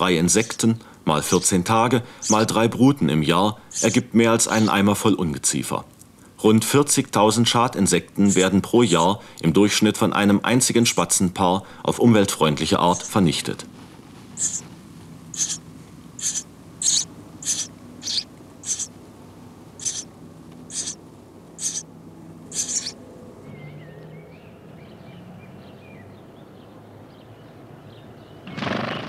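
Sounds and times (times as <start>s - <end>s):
nestlings hissing begging calls: 0.0s - 4.9s, 8.2s - 9.2s, 12.8s - 13.2s, 14.4s - 14.7s, 15.3s - 19.0s, 19.7s - 21.9s, 22.5s - 23.0s
faint wavering chirps: 0.3s - 0.7s, 2.1s - 2.7s, 3.6s - 4.8s, 8.3s - 8.6s, 12.9s - 13.2s, 14.4s - 14.7s, 15.3s - 19.0s, 19.7s - 21.9s, 22.5s - 23.0s.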